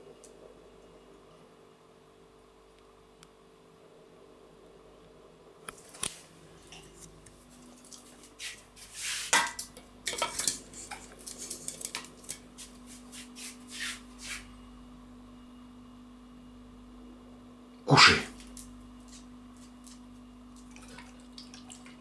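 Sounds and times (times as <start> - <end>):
bowl clinking and scraping: 9.2 - 12.0.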